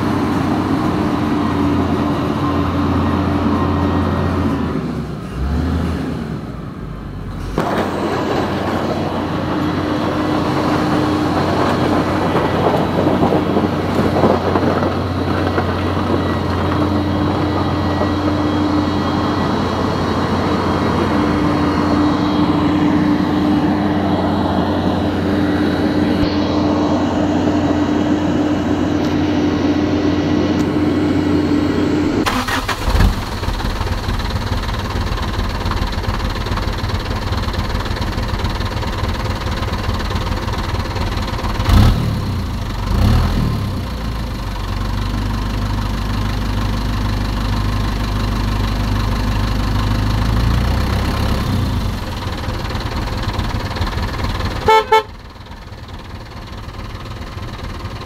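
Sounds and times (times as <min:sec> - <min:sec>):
vehicle engine running: 0:00.0 - 0:58.0
horn sounding steady note: 0:54.6 - 0:55.2.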